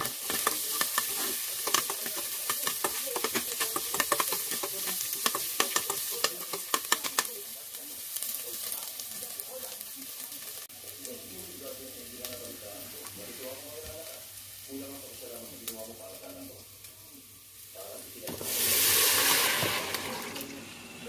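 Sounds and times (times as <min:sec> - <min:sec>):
metal spoon scraping pot: 0:00.0 - 0:07.1
steady sizzling: 0:00.0 - 0:21.0.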